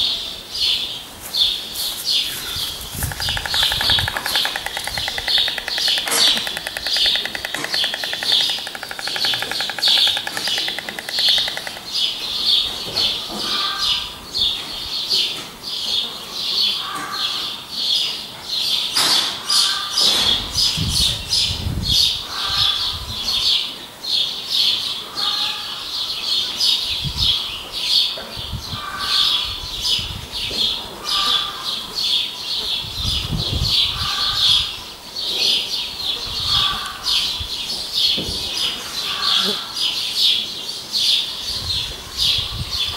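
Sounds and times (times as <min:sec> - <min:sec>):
small birds chirping: 0:00.6 - 0:16.1.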